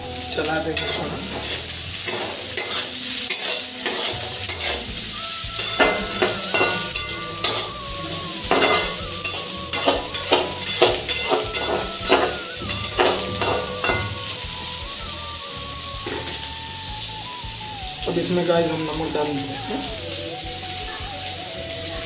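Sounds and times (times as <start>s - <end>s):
onions sizzling in hot oil: 0.0s - 22.0s
ladle scraping metal pan: 0.8s - 4.9s, 5.6s - 7.7s, 8.4s - 14.4s.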